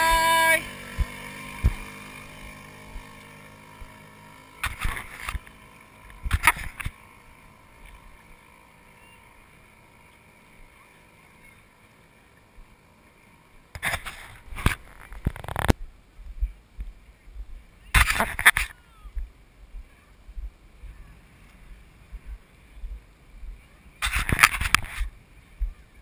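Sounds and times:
small outboard motor running: 0:00.0 - 0:15.7.

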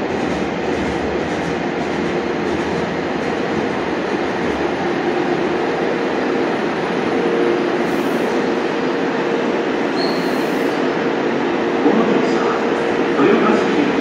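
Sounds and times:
subway train rumbling: 0:00.0 - 0:14.0
train squeal: 0:09.9 - 0:10.9.

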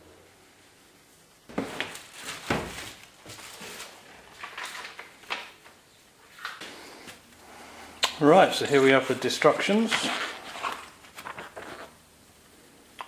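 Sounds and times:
plastic and cardboard crinkling: 0:01.5 - 0:07.3, 0:08.7 - 0:12.0.

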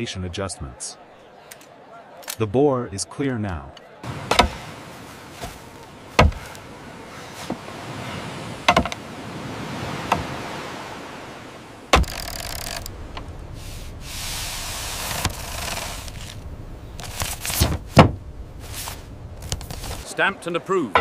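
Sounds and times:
sharp knocks: 0:04.2 - 0:04.6.

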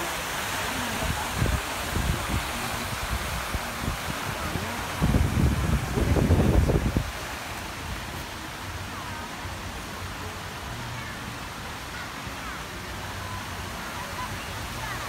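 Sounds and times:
steady background hiss: 0:00.0 - 0:15.0
wind rumbling on microphone: 0:00.3 - 0:08.7.

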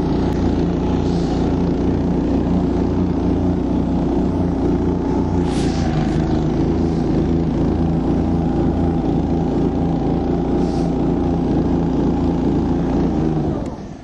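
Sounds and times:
snowmobile engine straining: 0:00.0 - 0:14.0
brief hisses: 0:05.4 - 0:07.2.

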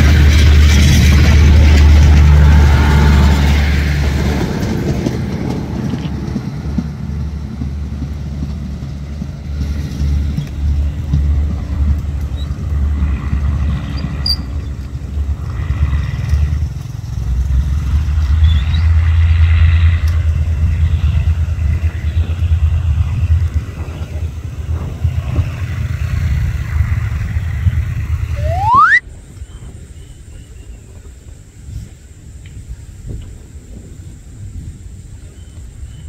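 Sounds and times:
train rattling clatter: 0:00.0 - 0:28.3
diesel train engine rumble: 0:00.0 - 0:36.0
brief rising tone: 0:28.3 - 0:29.0.

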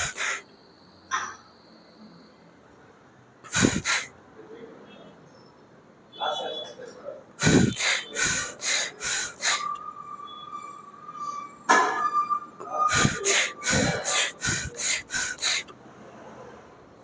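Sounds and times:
man breathing forcefully: 0:00.0 - 0:00.4, 0:03.5 - 0:04.1, 0:07.4 - 0:09.8, 0:12.9 - 0:15.7.

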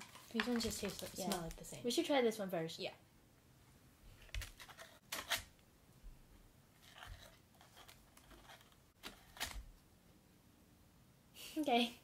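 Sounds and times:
rustles and tearing scrapes: 0:06.8 - 0:09.6.

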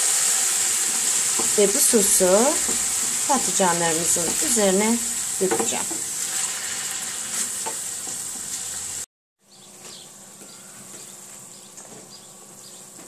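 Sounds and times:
sauce sizzling in a frying pan: 0:00.0 - 0:09.1
wooden spoon stirring: 0:00.7 - 0:08.9.

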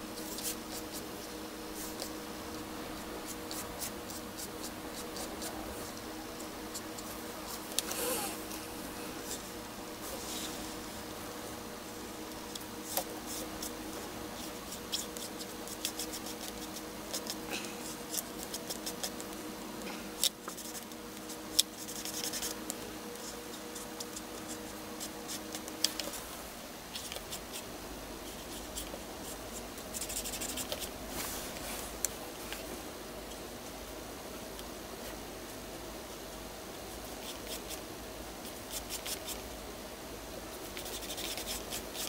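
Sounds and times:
faint steady hum: 0:00.0 - 0:42.0
marker scratching on paper: 0:12.5 - 0:19.2, 0:20.5 - 0:22.6, 0:28.2 - 0:30.9, 0:40.7 - 0:42.0.

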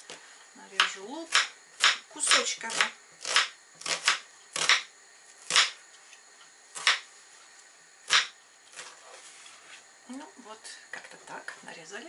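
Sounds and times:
knife chopping on cutting board: 0:05.5 - 0:05.8, 0:08.1 - 0:08.9.

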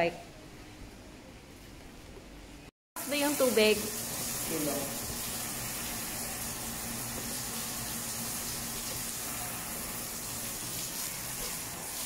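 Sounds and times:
hose spraying water: 0:03.0 - 0:12.0.

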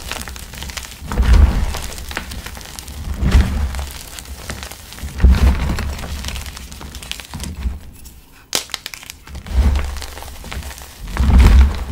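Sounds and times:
chalk crunching in hands: 0:00.0 - 0:11.9
chalk chunk snapping: 0:08.4 - 0:11.9.

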